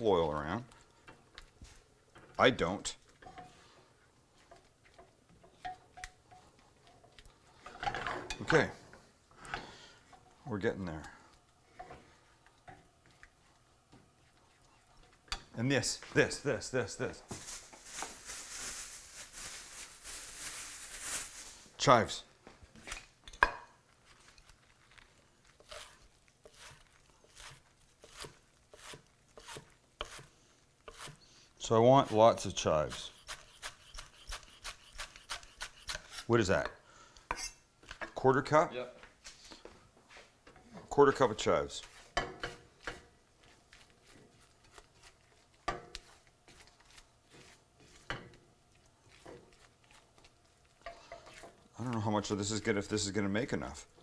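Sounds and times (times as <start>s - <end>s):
spatula scraping a skillet: 25.6s - 31.3s, 32.1s - 36.3s, 37.3s - 37.6s, 41.8s - 51.7s.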